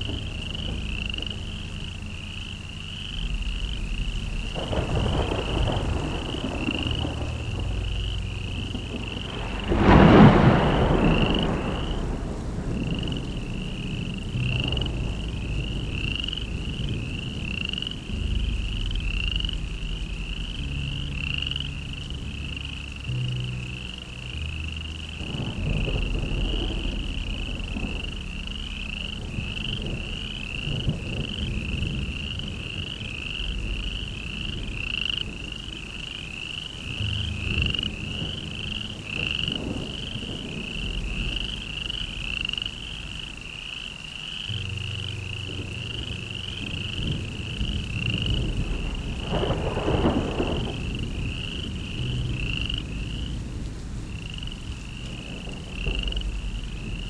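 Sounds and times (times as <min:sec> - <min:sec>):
frogs chirping: 0:00.0 - 0:57.0
low shifting rumble: 0:00.0 - 0:57.0.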